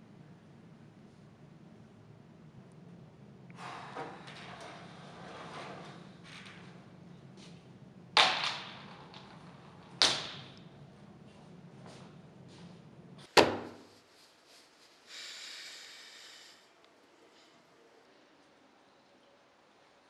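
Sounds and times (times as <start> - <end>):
steady low hum: 0.0 - 20.0
short hiss: 14.6 - 16.7.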